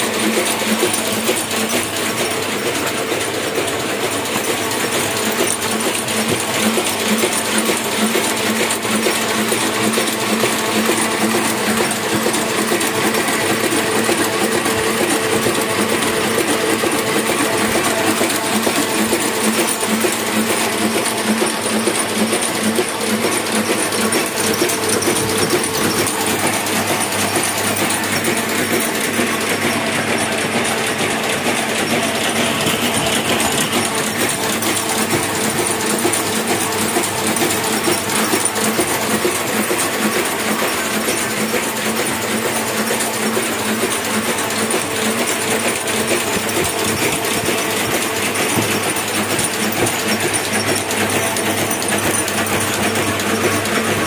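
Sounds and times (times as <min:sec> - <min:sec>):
printing press clatter: 0:00.0 - 0:54.0.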